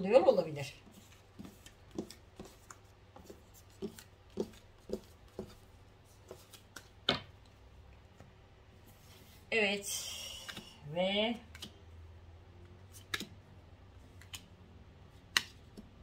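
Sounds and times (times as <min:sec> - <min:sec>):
cards tapping and clicking: 0:00.9 - 0:07.6, 0:11.4 - 0:11.8, 0:13.0 - 0:13.4, 0:14.1 - 0:14.5, 0:15.2 - 0:16.0.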